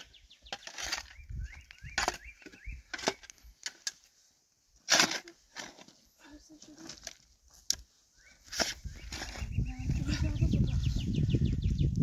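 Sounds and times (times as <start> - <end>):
bird chirping: 0.0 - 3.4, 8.0 - 12.0
spade scraping stony soil: 0.0 - 4.0, 4.8 - 7.8, 8.4 - 9.6.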